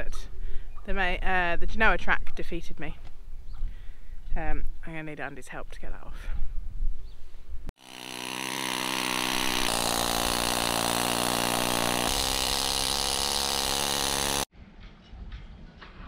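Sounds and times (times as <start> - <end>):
needle scaler buzzing clatter: 7.8 - 14.5.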